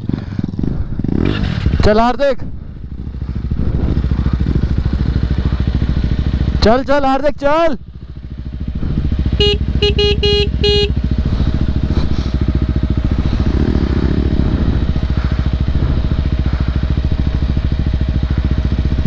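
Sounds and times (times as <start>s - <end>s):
motorcycle engine running: 0.0s - 19.0s
short horn beeps: 9.3s - 11.1s.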